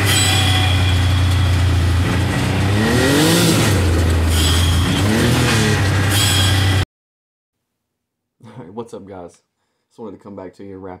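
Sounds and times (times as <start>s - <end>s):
engine revving: 0.0s - 6.8s.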